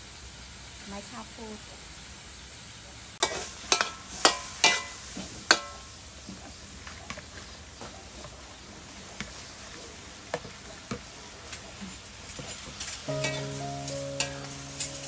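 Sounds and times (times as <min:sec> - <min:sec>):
frying sizzle: 0:00.0 - 0:15.0
metal spatula clanking on wok: 0:03.2 - 0:05.8, 0:13.1 - 0:15.0.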